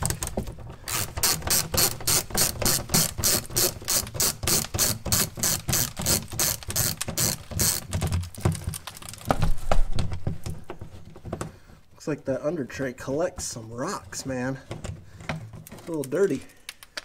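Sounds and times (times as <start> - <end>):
ratchet pawl clicking: 0.9 - 7.9.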